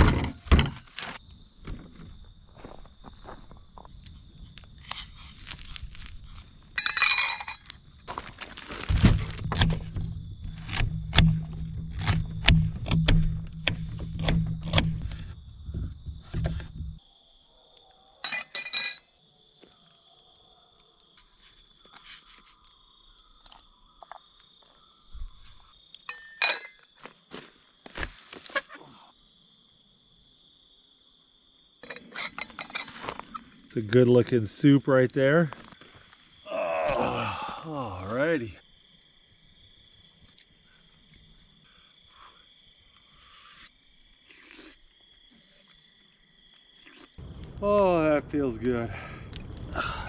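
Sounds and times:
metal pot and lid clinking: 6.8 - 7.7, 18.2 - 19.0, 26.1 - 26.9, 31.8 - 33.0
high insect drone: 27.0 - 35.0, 35.6 - 50.0
low rumble: 47.2 - 50.0.

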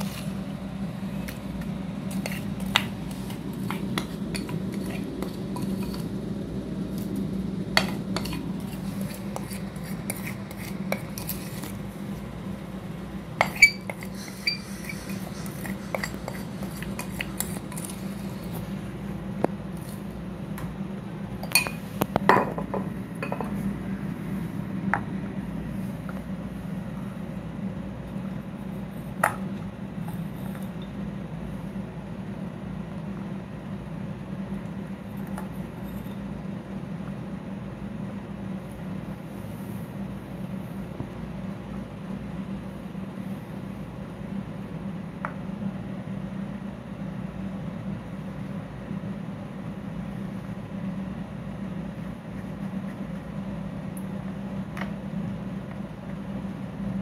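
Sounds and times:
steady low hum: 0.0 - 57.0
spatula scraping glass bowl: 2.1 - 6.1, 7.8 - 11.8, 13.4 - 18.6.

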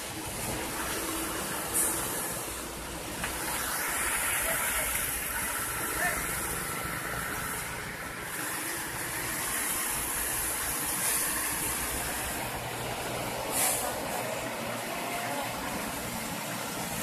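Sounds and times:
diesel engine running: 0.0 - 17.0
brief hiss: 1.4 - 2.6, 13.4 - 14.4.

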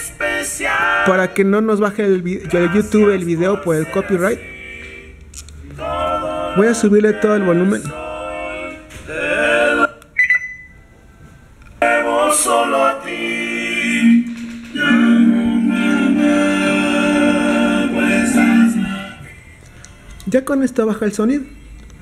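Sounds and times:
song from small speaker: 0.0 - 1.6, 2.4 - 10.2, 11.8 - 20.2
short beep: 10.2 - 10.9.

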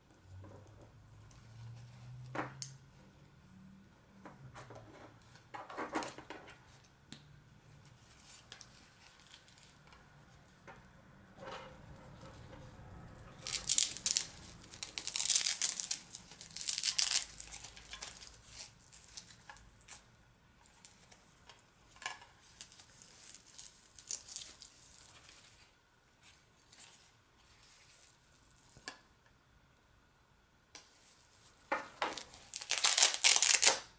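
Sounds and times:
velcro strap ripped open: 13.4 - 20.0, 32.1 - 33.9.

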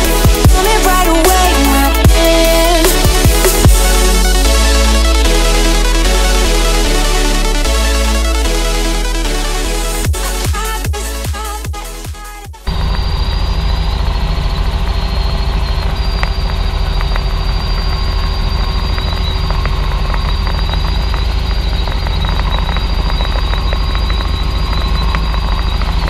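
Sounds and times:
turbine whine: 12.6 - 26.0.

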